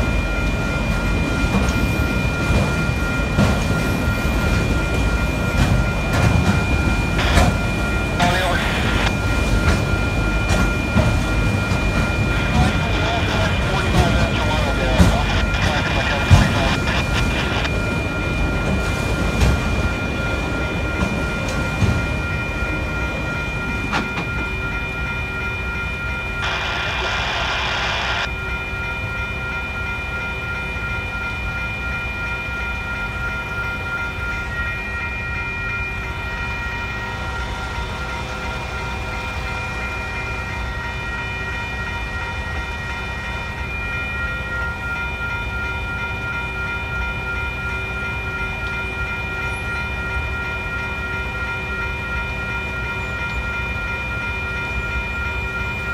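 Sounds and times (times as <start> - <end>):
freight cars rumbling: 0.0 - 25.2
crossing warning bell ringing: 0.0 - 55.9.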